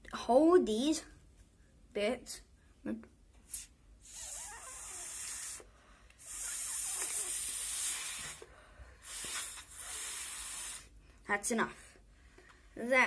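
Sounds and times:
child blowing into paper: 3.5s - 10.9s.

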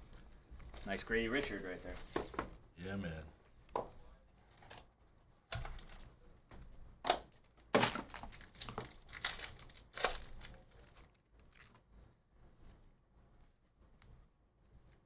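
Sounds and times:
foil wrapper crinkling and tearing: 7.8s - 11.8s.

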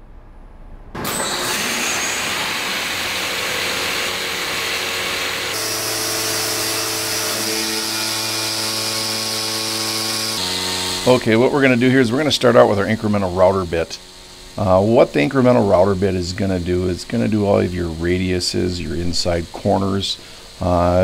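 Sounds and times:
router bit grinding into stone: 1.0s - 16.8s
spindle hum: 1.0s - 21.0s.

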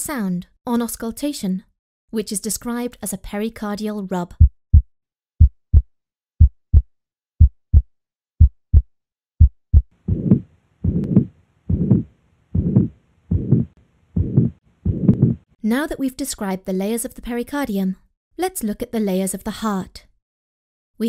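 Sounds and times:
heartbeat lub-dub: 4.4s - 15.5s
rough rubbing heart sound: 5.4s - 15.5s.

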